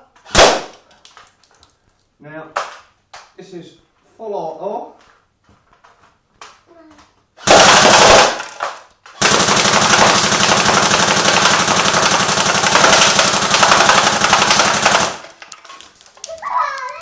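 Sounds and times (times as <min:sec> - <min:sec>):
airsoft rifle firing bursts: 0:07.4 - 0:08.6, 0:09.2 - 0:15.4
pellets striking tin can: 0:08.3 - 0:16.0.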